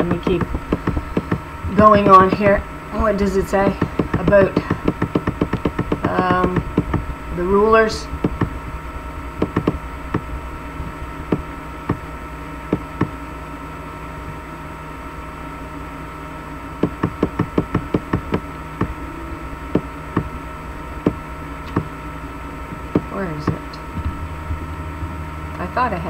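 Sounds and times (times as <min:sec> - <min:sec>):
steady electrical hum: 0:00.0 - 0:26.0
keyboard and mouse clicks: 0:03.9 - 0:07.0.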